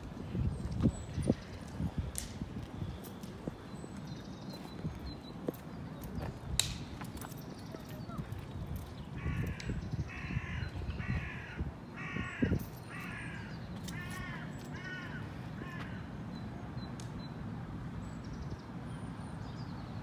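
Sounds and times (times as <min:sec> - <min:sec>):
crow cawing: 0:09.2 - 0:16.0.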